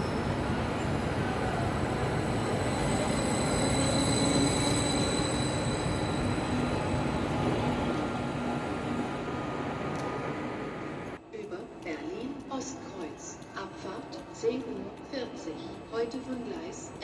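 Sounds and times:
high-pitched train tones: 0:00.0 - 0:09.4.

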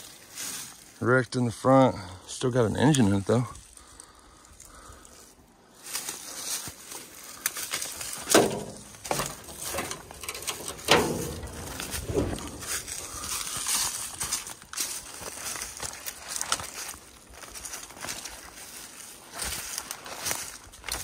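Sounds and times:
footsteps on rough ground: 0:05.7 - 0:21.0.

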